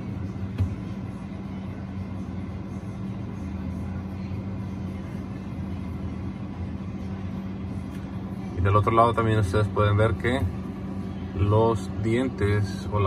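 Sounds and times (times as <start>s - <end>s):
refrigerator low hum: 0.0s - 13.0s.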